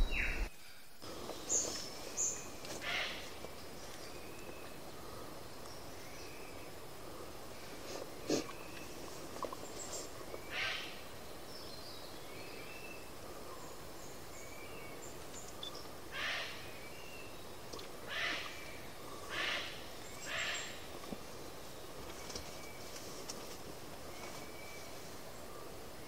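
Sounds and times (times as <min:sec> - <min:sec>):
harsh rasping bird calls: 0:01.3 - 0:05.2, 0:07.6 - 0:11.2, 0:15.0 - 0:21.1.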